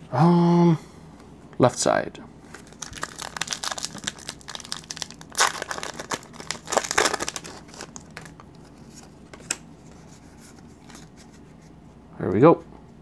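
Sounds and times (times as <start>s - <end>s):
foil wrapper crinkling: 2.5s - 9.6s.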